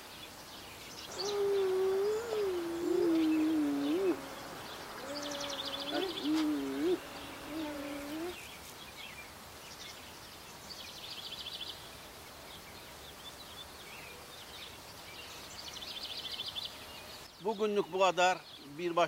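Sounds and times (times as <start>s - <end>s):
outdoor ambience: 1.0s - 9.0s
person humming: 1.1s - 8.4s
songbird high trill: 1.1s - 8.4s.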